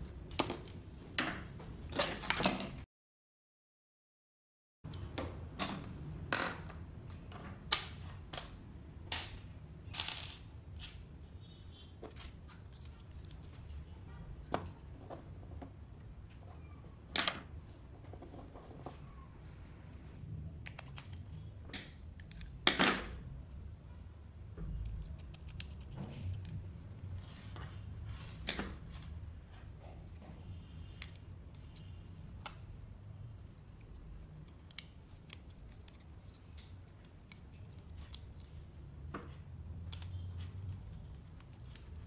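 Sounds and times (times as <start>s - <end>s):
small parts clicking on a table: 7.7s - 11.0s.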